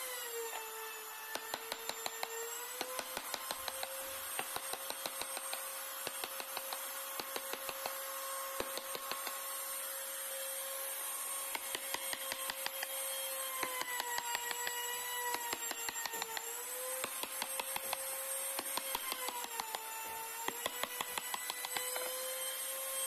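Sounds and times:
chisel cutting into wood: 11.5 - 22.2.

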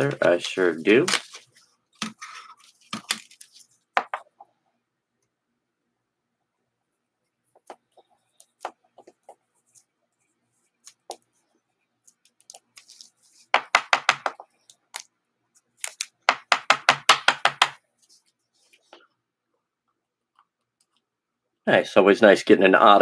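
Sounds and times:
trading cards clicking and tapping: 13.6 - 14.4, 15.8 - 17.8.

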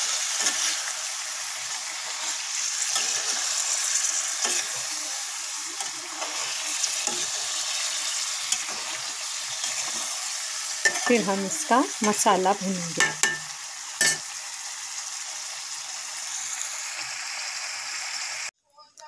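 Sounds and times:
metal spatula scraping a pan: 0.0 - 12.2, 13.0 - 14.3
vegetables sizzling in hot oil: 0.0 - 18.5.

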